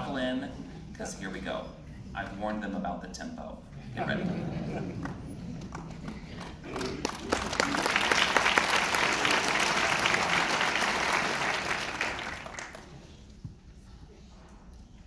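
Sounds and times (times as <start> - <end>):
audience applauding: 5.0 - 13.2.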